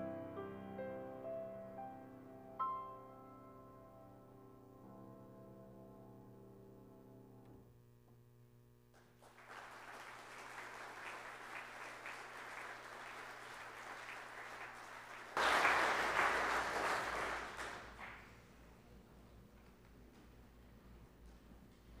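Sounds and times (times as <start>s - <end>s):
grand piano notes ringing: 0.0s - 7.5s
congregation applauding: 9.0s - 18.5s.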